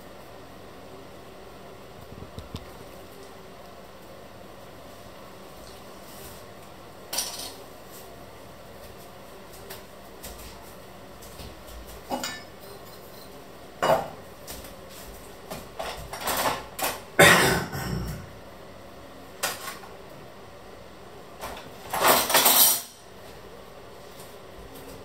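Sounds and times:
metal pots and utensils clattering: 12.1s - 14.1s, 21.9s - 23.0s.

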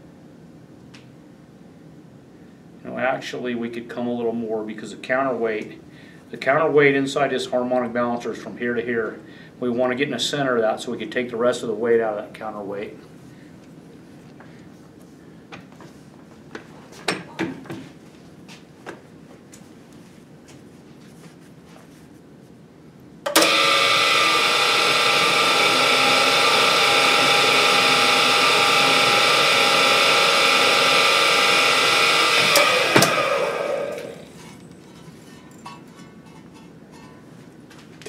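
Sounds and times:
drill press drilling whine: 23.3s - 34.4s.

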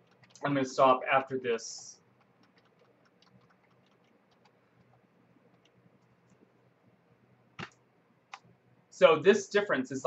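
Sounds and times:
computer mouse clicks: 0.0s - 0.5s, 2.2s - 6.4s.

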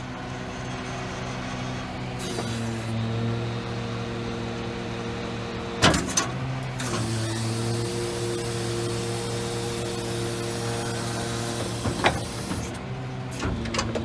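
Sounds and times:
truck hydraulic system running: 5.9s - 14.0s.

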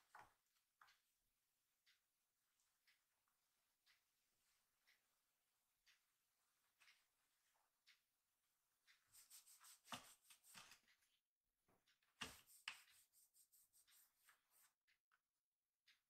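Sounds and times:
kitten claws scratching carpet: 9.1s - 10.8s, 12.2s - 14.7s.

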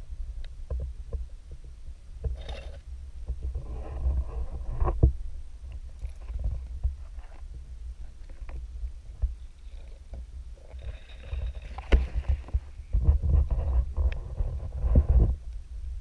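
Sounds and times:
rustling scrape: 2.3s - 5.0s, 5.9s - 8.6s, 9.3s - 15.4s.

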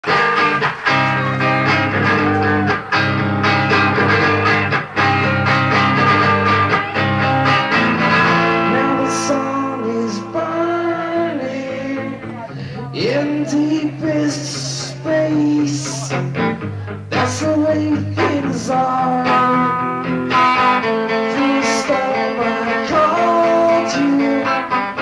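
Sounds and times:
electric guitar strumming chords: 0.0s - 25.0s
man singing: 8.5s - 19.9s, 20.6s - 25.0s.

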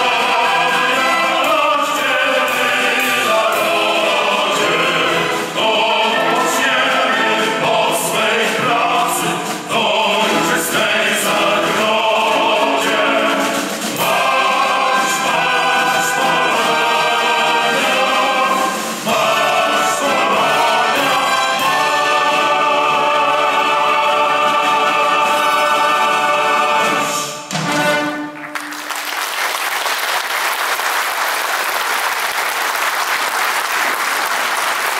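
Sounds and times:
men's choir singing a march: 0.0s - 28.3s
orchestra playing: 0.0s - 29.3s
audience applauding: 28.2s - 34.9s.

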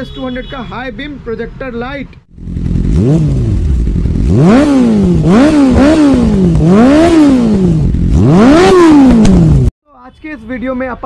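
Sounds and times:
motorcycle engine revving: 2.3s - 9.7s.

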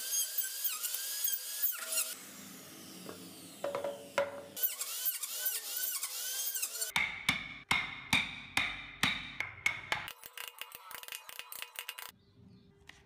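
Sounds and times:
hammer striking chisel into wood: 7.0s - 10.1s.

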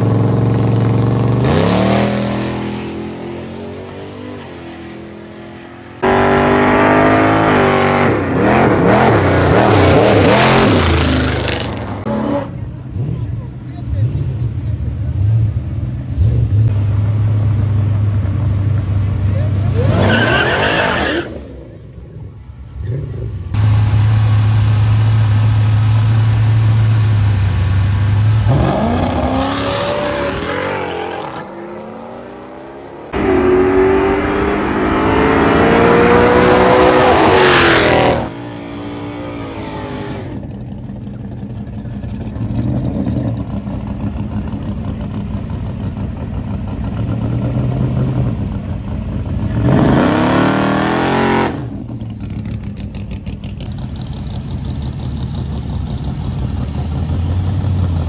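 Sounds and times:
car accelerating: 19.0s - 48.7s
engines idling: 21.5s - 29.3s, 40.4s - 49.7s, 51.8s - 58.0s
racing car engine revving: 28.4s - 40.5s, 49.5s - 51.7s.

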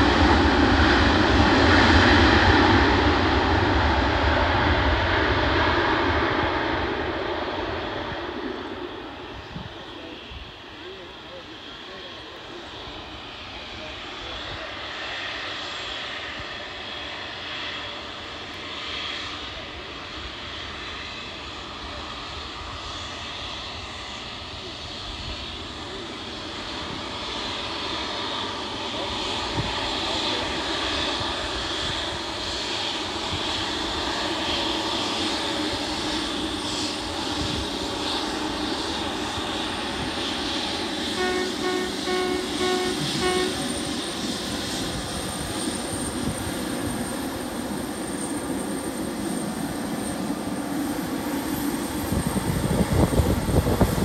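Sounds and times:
jet engines taxiing: 0.0s - 54.0s.

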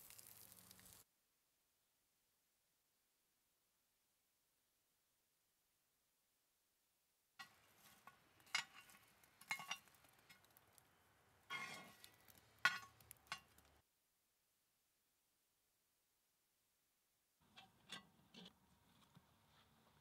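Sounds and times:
coals clinking on metal lid: 7.4s - 10.8s, 11.5s - 13.8s.

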